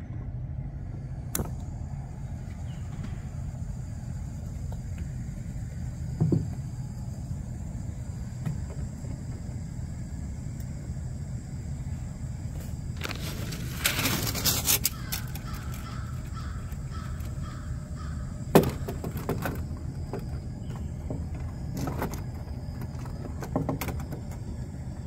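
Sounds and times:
steady low rumble: 0.0s - 25.0s
crow cawing: 14.6s - 18.9s.

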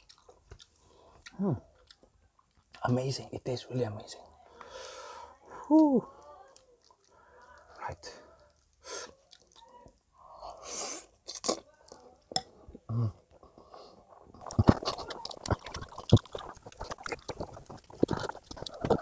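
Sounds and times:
wet chewing and mouth smacks: 0.0s - 2.8s, 6.2s - 10.1s, 14.4s - 19.0s
mouth clicks: 14.4s - 19.0s.

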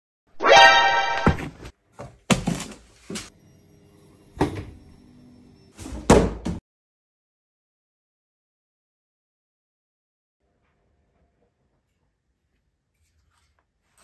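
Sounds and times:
person falling to the floor: 0.4s - 1.7s.

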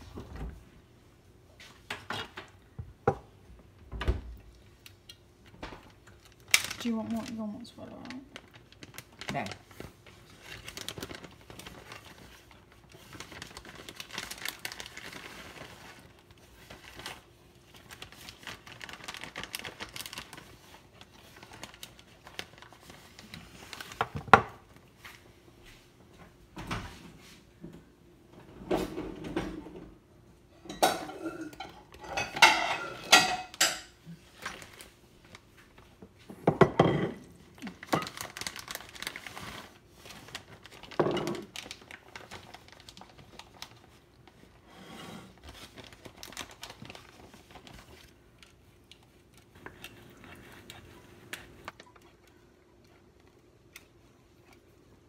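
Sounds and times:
utensils and pans clattering: 30.6s - 34.0s.

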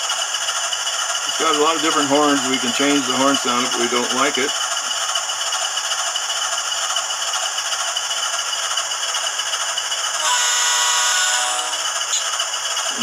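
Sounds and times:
hissing locomotive running sound: 0.0s - 13.0s
multi-note horn blast: 10.2s - 11.9s.

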